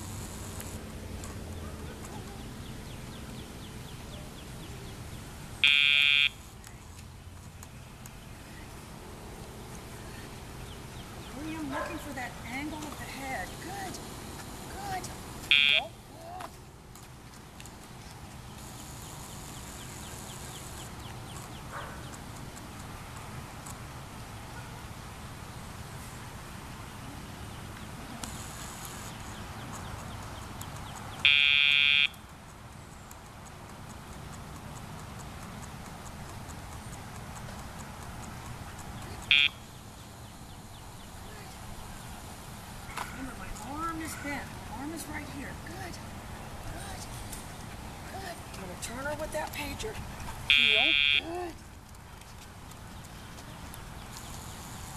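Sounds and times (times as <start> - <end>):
electronic buzzer tone: 5.6 - 6.4, 15.5 - 15.9, 31.2 - 32.2, 39.3 - 39.6, 50.5 - 51.3
steady electronic beep: 5.6 - 6.4, 15.5 - 15.8, 39.3 - 39.6.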